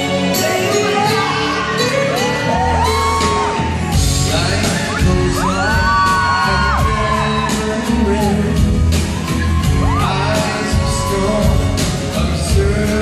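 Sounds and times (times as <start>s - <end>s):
audience whooping and yelling: 0.1s - 12.8s
men singing into microphones: 4.2s - 9.1s, 9.7s - 13.0s.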